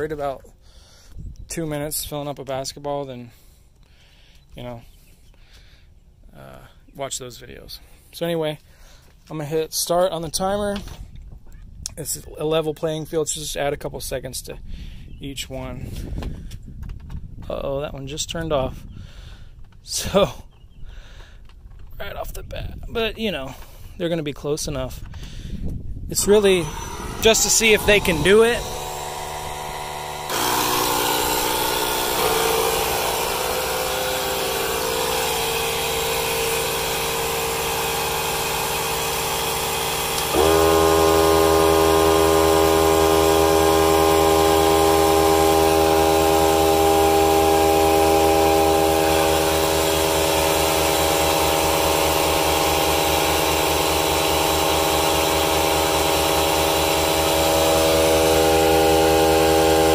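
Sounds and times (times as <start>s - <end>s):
motor spinning up whine: 26.1s - 59.9s
tyre inflator motor drone: 26.1s - 59.9s.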